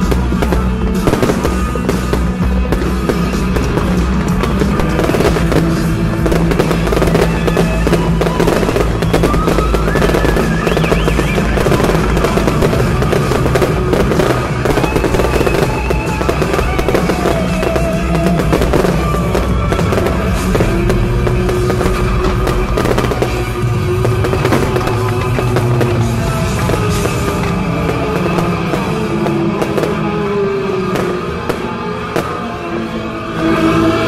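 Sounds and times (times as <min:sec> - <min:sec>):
fireworks crackling and popping: 0:00.0 - 0:34.0
loud show music: 0:00.0 - 0:34.0.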